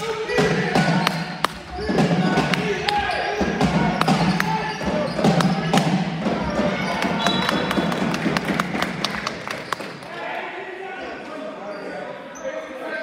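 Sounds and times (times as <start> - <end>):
basketballs bouncing on court: 0.0 - 10.0.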